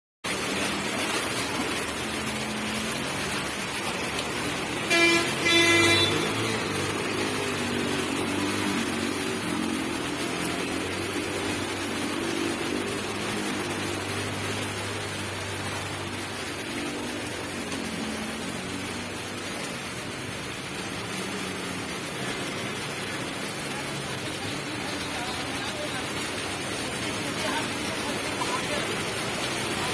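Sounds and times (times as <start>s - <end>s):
rain hissing on flooded street: 0.2s - 29.9s
vehicles driving through floodwater: 0.3s - 29.9s
vehicle horn honking: 4.8s - 6.5s.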